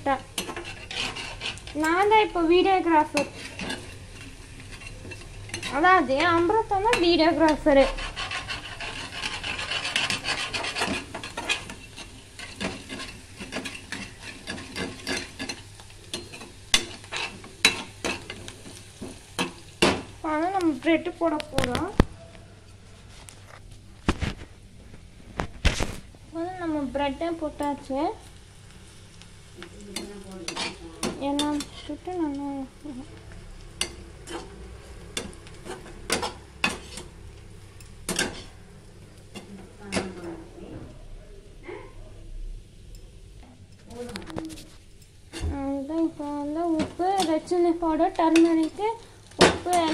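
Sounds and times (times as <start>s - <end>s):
onions sizzling in oil: 0.0s - 41.2s, 42.6s - 49.9s
ladle scraping a pan: 0.4s - 2.1s, 3.1s - 6.4s, 7.0s - 19.5s, 30.0s - 32.0s.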